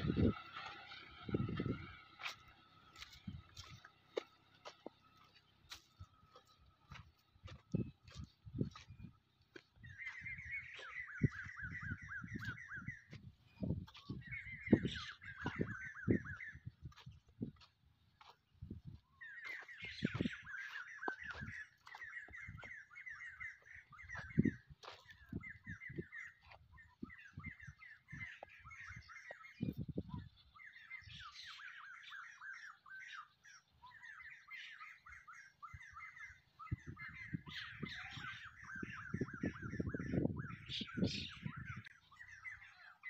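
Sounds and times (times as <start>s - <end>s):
birds chirping: 0.0s - 43.0s.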